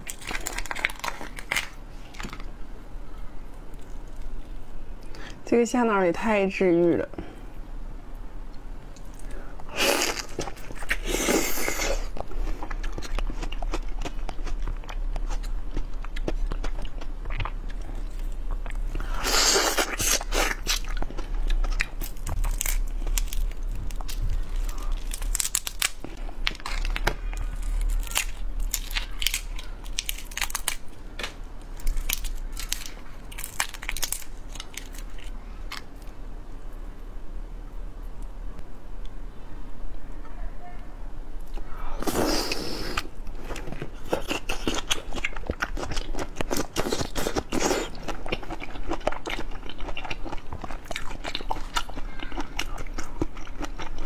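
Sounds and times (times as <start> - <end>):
crunching bites: 0.0 - 2.5, 8.9 - 36.1
shrimp shell cracking and peeling: 0.0 - 2.5, 19.7 - 35.9.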